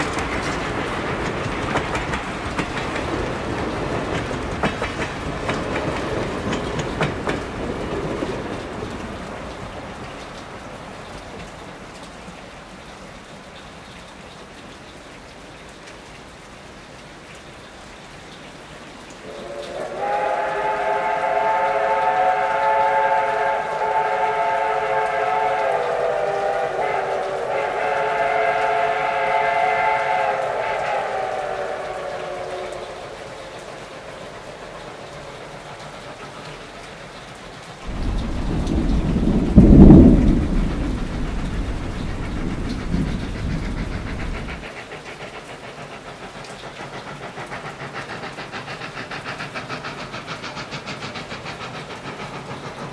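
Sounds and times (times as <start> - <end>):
steam locomotive running: 0.0 - 15.3, 18.0 - 52.9
steam whistle blast: 19.2 - 34.3, 37.9 - 44.7.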